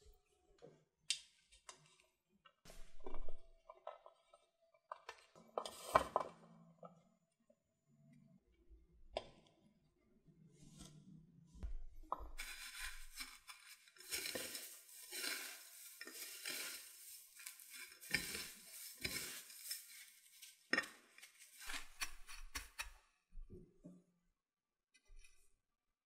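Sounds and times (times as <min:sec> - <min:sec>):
soft handling of potato cubes: 0:10.4 - 0:22.8
breadcrumbs rustling and crunching: 0:12.1 - 0:22.9.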